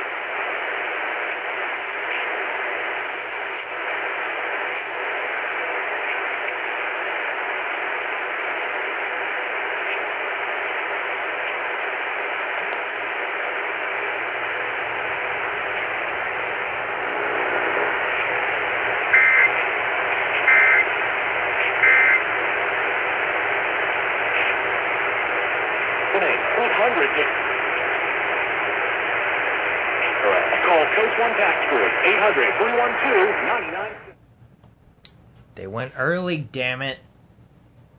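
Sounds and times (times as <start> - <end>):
radio static hiss: 0.0 - 34.2
warbling data tones: 19.0 - 19.7, 20.4 - 21.0, 21.7 - 22.3.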